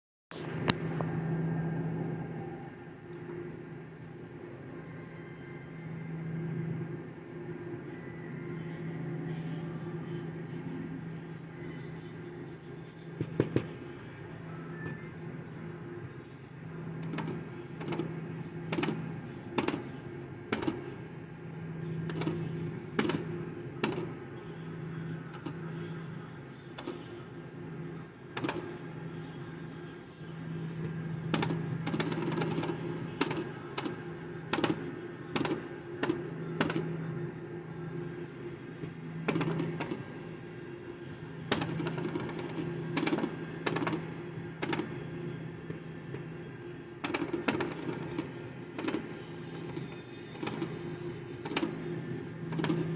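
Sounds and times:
low humming game tones: 0:00.4 - 0:52.9
slot machine clicks and clunks: 0:17.0 - 0:18.1, 0:18.7 - 0:19.0, 0:20.5 - 0:20.8, 0:22.1 - 0:22.4, 0:23.0 - 0:24.1, 0:28.4 - 0:28.8, 0:31.3 - 0:33.9, 0:34.5 - 0:36.9, 0:39.3 - 0:40.0, 0:41.5 - 0:44.0, 0:47.0 - 0:50.8, 0:51.4 - 0:51.8, 0:52.5 - 0:52.9.

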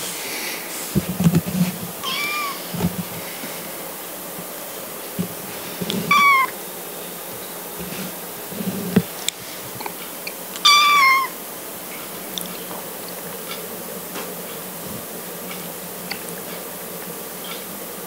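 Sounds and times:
kitten meowing: 0:02.0 - 0:02.7, 0:06.1 - 0:06.5, 0:10.6 - 0:11.4.

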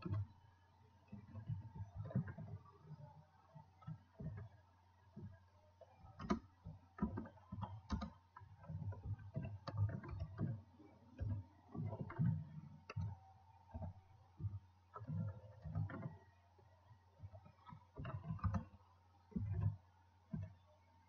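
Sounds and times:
computer keyboard typing: 0:06.1 - 0:08.2.

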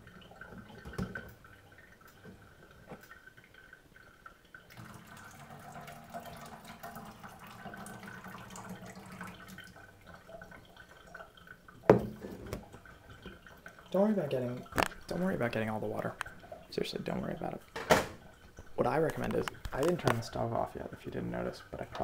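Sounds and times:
water splashing into a metal sink: 0:00.0 - 0:03.8, 0:04.5 - 0:20.7
pot knocking on counter: 0:11.9 - 0:12.6.

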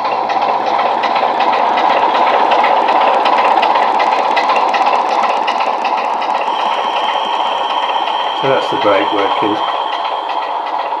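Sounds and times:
model train diesel engine sound: 0:00.0 - 0:11.0.

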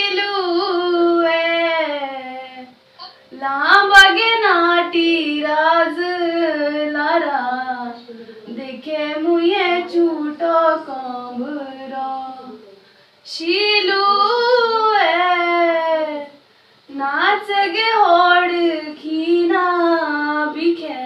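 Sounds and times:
woman singing unaccompanied: 0:00.0 - 0:21.0.

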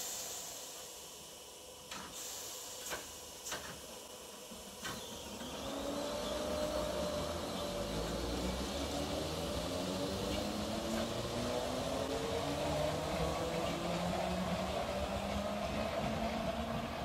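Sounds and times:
electric train motors whining: 0:03.6 - 0:17.0.

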